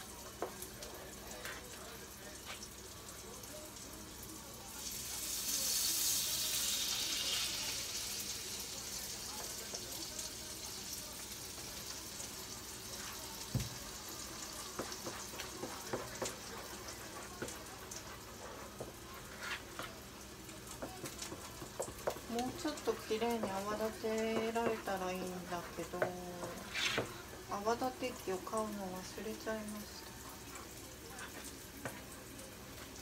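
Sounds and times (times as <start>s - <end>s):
spatula scraping metal pot: 26.4s - 27.2s.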